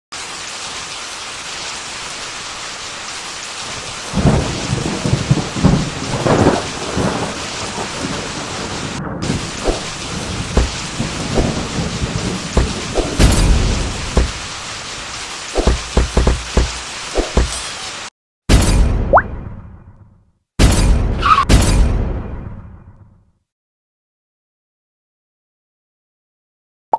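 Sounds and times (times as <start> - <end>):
heavy rain: 0.1 - 18.9
thunder rumbles and cracks: 3.7 - 15.2.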